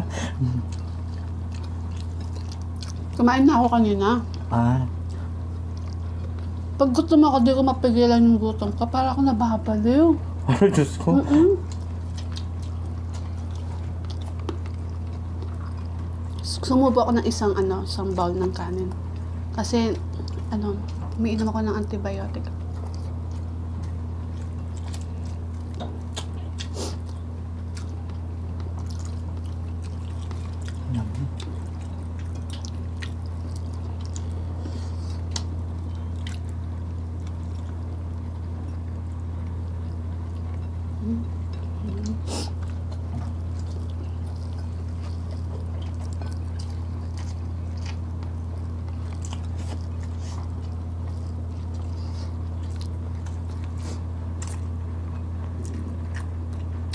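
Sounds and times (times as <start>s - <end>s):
steady low hum: 0.0s - 56.9s
wet chewing clicks and smacks: 0.6s - 3.3s, 4.2s - 6.6s, 11.6s - 16.7s, 22.4s - 56.9s.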